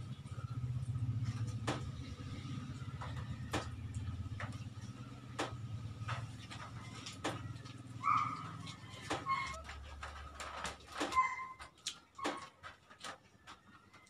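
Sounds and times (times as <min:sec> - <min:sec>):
high-pitched squeak: 0:08.0 - 0:10.2, 0:11.0 - 0:12.5.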